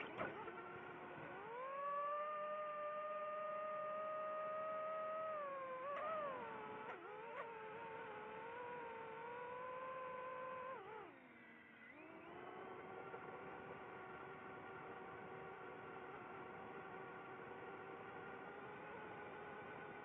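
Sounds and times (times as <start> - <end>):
drone propellers whining: 0.0 - 11.0.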